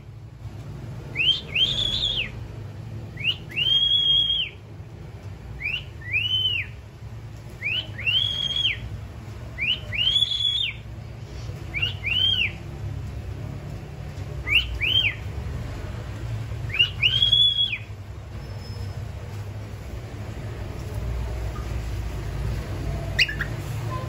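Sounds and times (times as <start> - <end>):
cockatiel whistling: 1.1 - 2.4, 3.2 - 4.6, 5.6 - 6.8, 7.6 - 8.8, 9.6 - 10.8, 11.7 - 12.6, 14.4 - 15.2, 16.7 - 18.9, 23.1 - 24.0.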